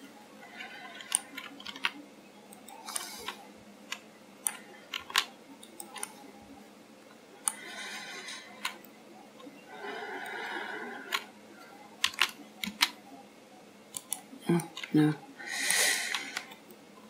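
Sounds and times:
mouse and keyboard clicks: 0.6 - 6.2, 12.0 - 13.0, 13.9 - 15.0, 15.7 - 16.8.

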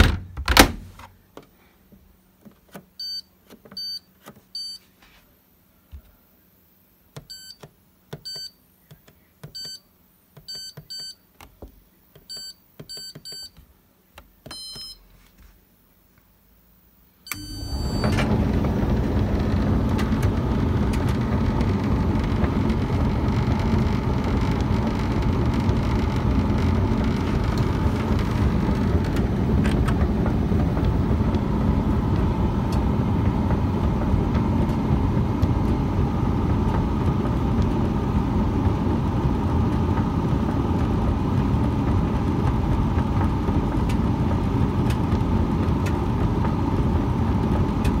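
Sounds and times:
tumble dryer running: 17.3 - 48.0.

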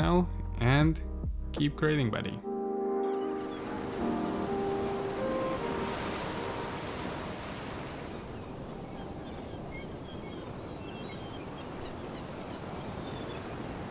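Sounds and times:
background music: 0.0 - 7.6
surf: 3.2 - 13.9
wind: 3.2 - 13.9.

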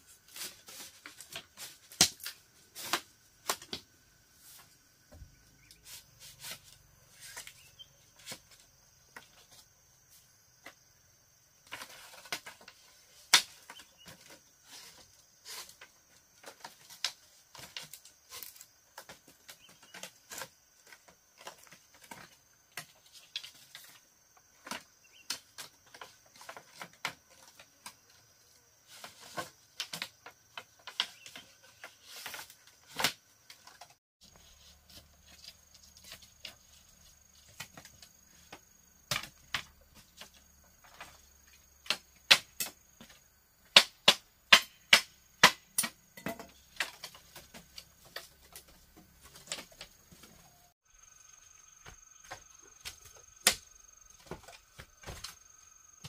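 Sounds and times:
bamboo pieces clicking and knocking: 0.4 - 3.9, 11.6 - 28.2, 28.9 - 50.6.

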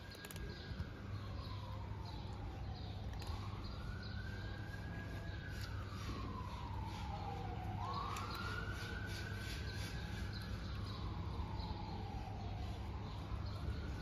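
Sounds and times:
low street rumble: 0.0 - 14.0
siren wailing: 0.0 - 14.0.

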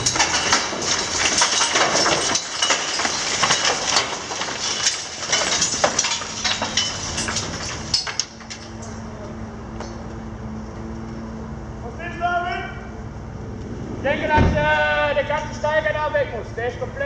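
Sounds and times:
rubble falling and clattering: 0.0 - 9.0.

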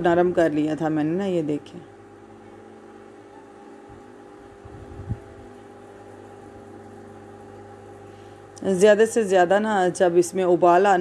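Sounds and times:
steady mechanical hum: 0.0 - 11.0
soft low thumps: 3.9 - 5.6.

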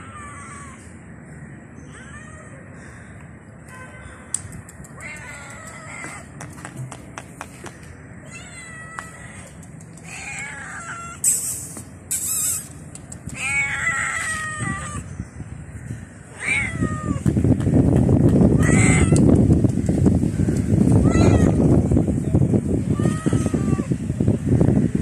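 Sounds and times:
cat meowing: 8.2 - 11.2, 13.3 - 15.0, 16.4 - 17.2, 18.6 - 19.3, 21.0 - 21.6, 22.9 - 23.9.

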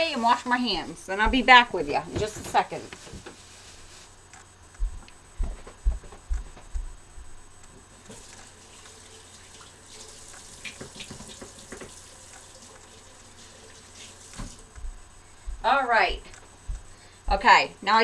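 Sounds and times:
dull footsteps on floor: 1.2 - 4.1, 4.7 - 7.4, 14.4 - 15.7, 16.6 - 17.4
kitchen tap running: 8.1 - 14.6.

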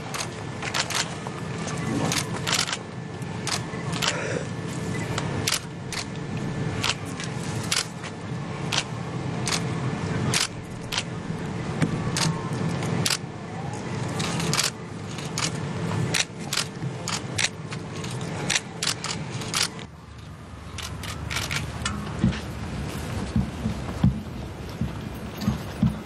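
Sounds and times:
low background murmur: 0.0 - 26.0
camera shutters clicking: 0.2 - 1.1, 2.1 - 2.8, 14.2 - 19.8, 20.8 - 21.7.

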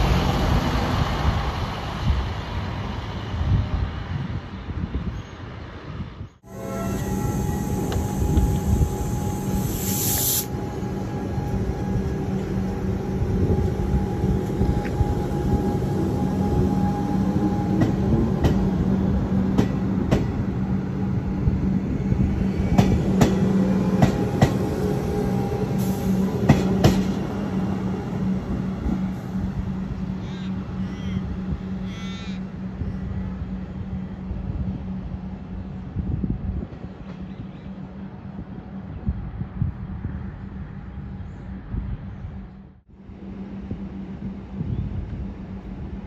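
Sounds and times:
electric train hum: 0.0 - 46.0
high hiss: 6.9 - 10.7.

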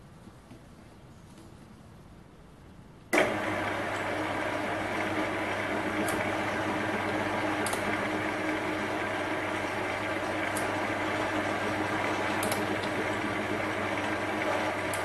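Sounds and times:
lathe humming and whining: 3.2 - 15.0.

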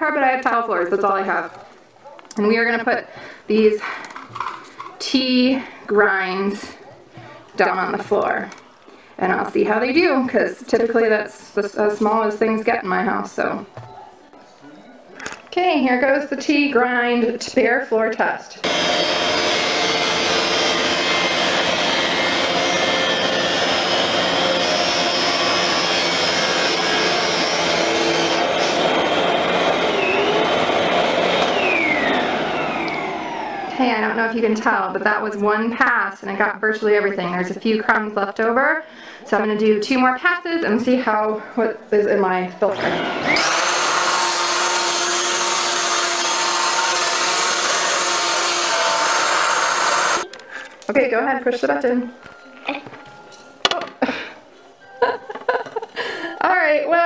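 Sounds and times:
vacuum cleaner running: 18.6 - 34.3, 42.7 - 50.3.

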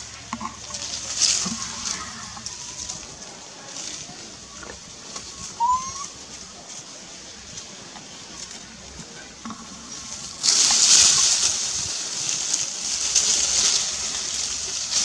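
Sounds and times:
animal call rising in pitch: 5.4 - 6.2.

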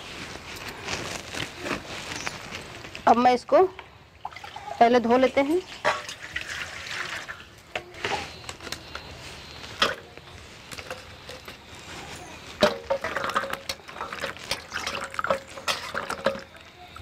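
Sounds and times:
water splashing and sloshing: 4.2 - 7.6, 12.6 - 16.6
water pouring from a mug: 5.7 - 7.5, 12.9 - 16.5
gourds knocking against metal bowl: 12.6 - 16.5.

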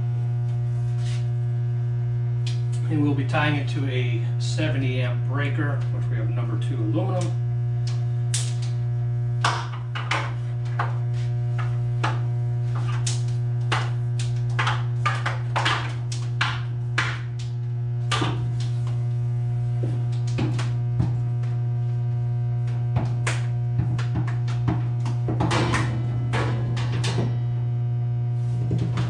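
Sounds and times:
transformer electrical hum: 0.0 - 29.0
wire clicking and rustling: 12.7 - 19.2.

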